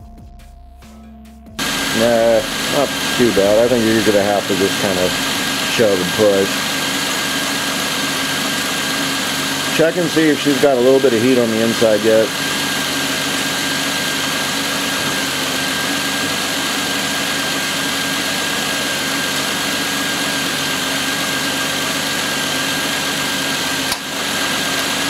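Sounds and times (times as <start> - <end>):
car engine idling: 1.4 - 25.0
steady hiss: 1.6 - 6.7
thin high whine: 1.6 - 20.2.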